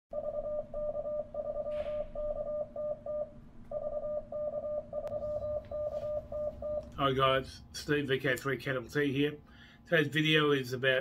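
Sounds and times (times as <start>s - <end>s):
morse code beeping: 0.2s - 7.0s.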